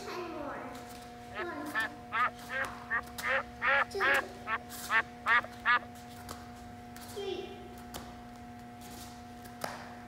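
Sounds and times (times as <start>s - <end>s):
duck quacking: 1.4s - 5.9s.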